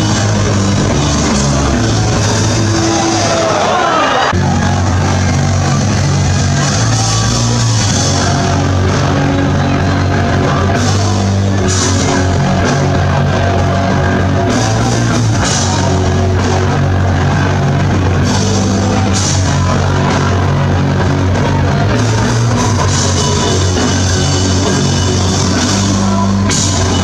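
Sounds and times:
live punk band playing: 0.0 - 27.0.

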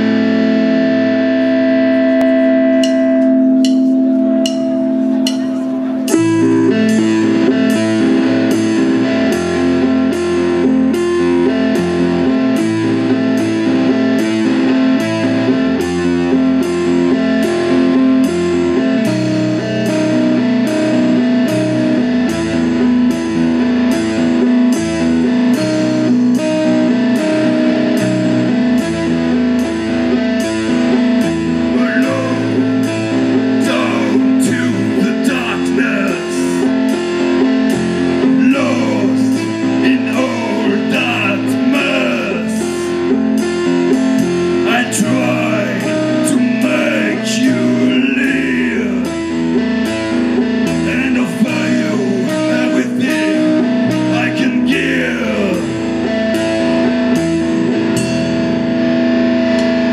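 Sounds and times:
bass guitar: 0.0 - 59.9
drums: 0.0 - 59.9
electric guitars playing riff: 0.0 - 59.9
cymbal beat: 2.2 - 8.7.

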